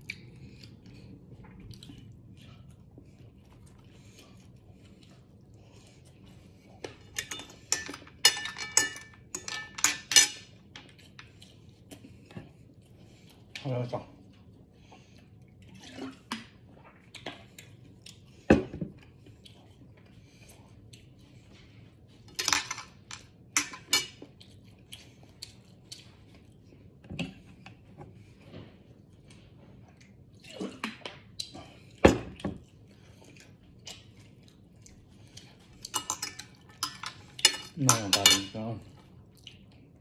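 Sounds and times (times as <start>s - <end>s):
tableware clinking on wooden table: 36.0s - 38.5s.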